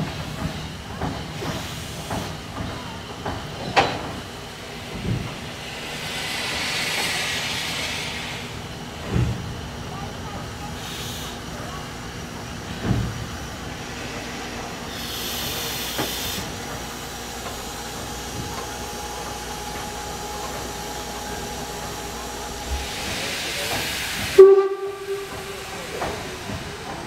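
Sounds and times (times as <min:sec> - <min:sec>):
steam locomotive hissing steam: 0:00.0 - 0:27.0
steam whistle blast: 0:24.4 - 0:26.2.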